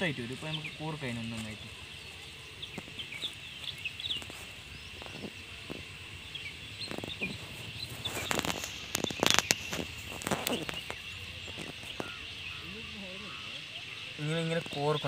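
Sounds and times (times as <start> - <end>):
birds chirping: 0.0 - 15.0
high insect drone: 0.0 - 15.0
crackling handling noise: 6.8 - 12.2.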